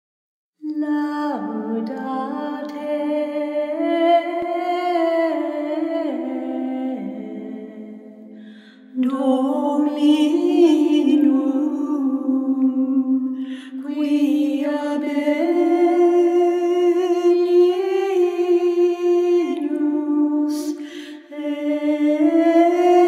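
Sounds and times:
person singing slow melody: 0.6 - 23.0
person breathing: 8.3 - 9.0, 13.4 - 13.8, 20.7 - 21.3.

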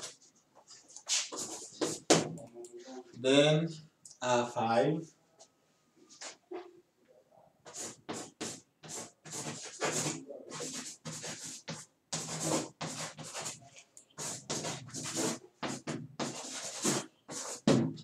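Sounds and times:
chalk scratching on blackboard: 0.0 - 2.2, 7.6 - 18.0.

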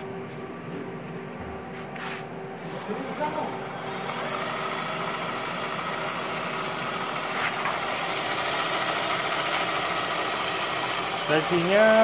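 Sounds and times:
electric hub motor whirring: 2.6 - 12.0.

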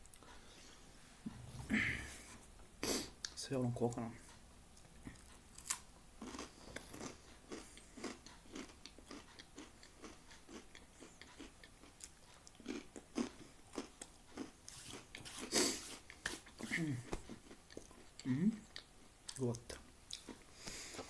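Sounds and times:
crunching crispbread: 5.5 - 18.2.

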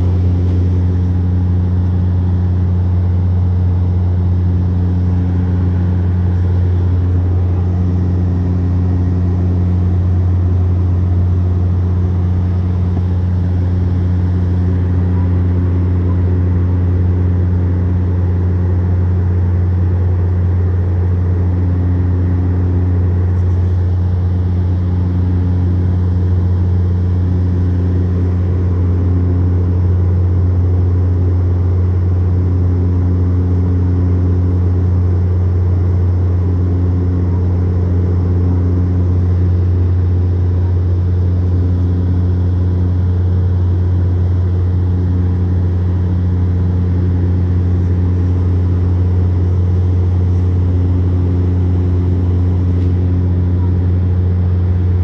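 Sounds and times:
propeller plane engines droning: 0.0 - 55.0.

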